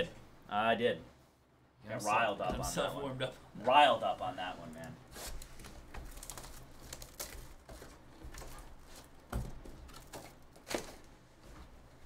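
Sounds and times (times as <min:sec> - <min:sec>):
cardboard and wrapper rustling: 0:05.0 - 0:11.5.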